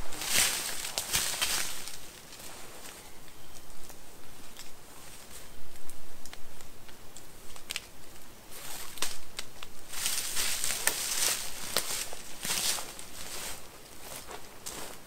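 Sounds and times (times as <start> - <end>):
footsteps on dry leaf litter: 0.0 - 3.1, 9.8 - 15.0.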